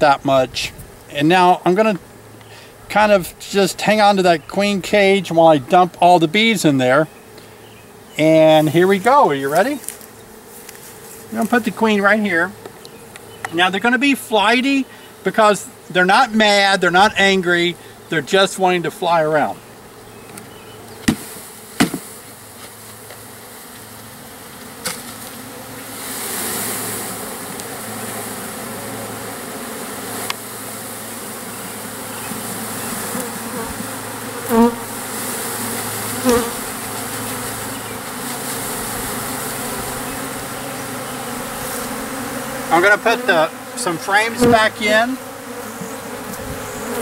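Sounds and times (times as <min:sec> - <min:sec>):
bees buzzing: 0:00.0 - 0:47.0
sharp knocks: 0:21.0 - 0:22.1.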